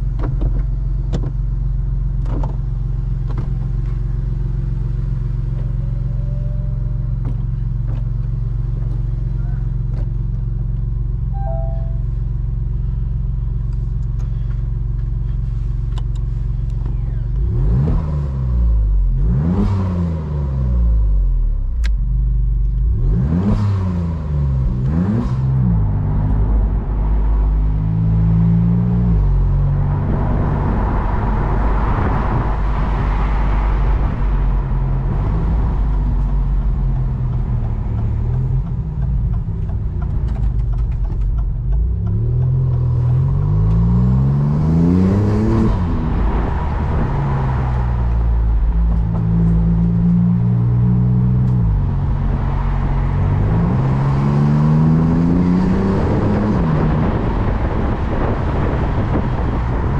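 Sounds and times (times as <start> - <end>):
sports car engine revving: 16.3 - 21.5, 22.7 - 59.9.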